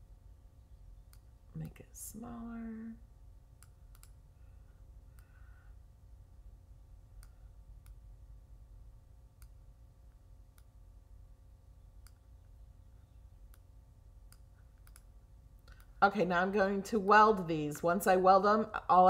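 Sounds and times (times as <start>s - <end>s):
low steady hum: 0.0s - 19.0s
faint computer mouse clicks: 3.6s - 4.2s, 14.3s - 15.9s.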